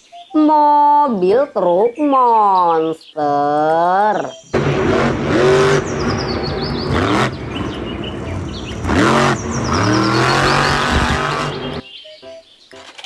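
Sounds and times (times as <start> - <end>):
truck engine revving hard: 4.5 - 11.8.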